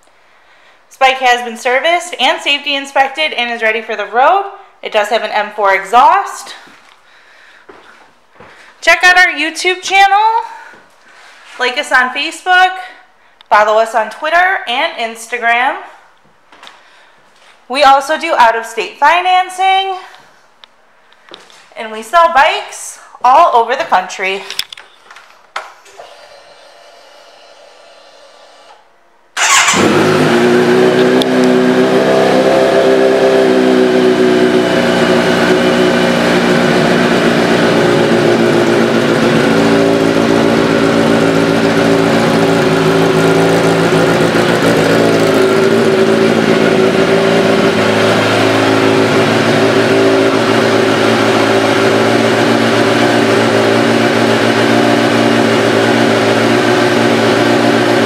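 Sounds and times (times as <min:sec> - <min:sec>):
motorcycle engine starting and idling: 0:25.8 - 0:58.0.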